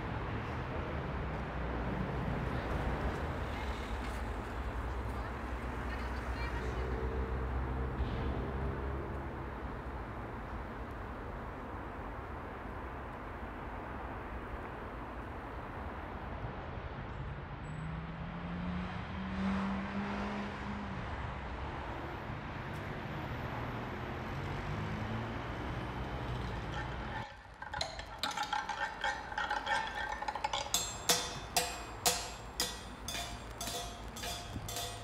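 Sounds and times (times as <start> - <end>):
road noise hum: 0.0 - 35.0
car engines passing: 16.7 - 27.2
sharp ringing clinks: 29.4 - 35.0.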